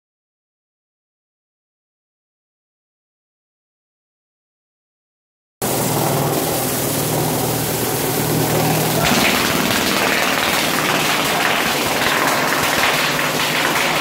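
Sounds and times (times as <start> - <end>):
electric motor humming: 5.6 - 12.0.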